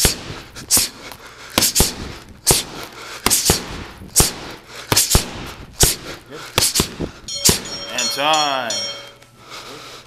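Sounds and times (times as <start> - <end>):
punches smacking gloves: 0.0 - 7.8.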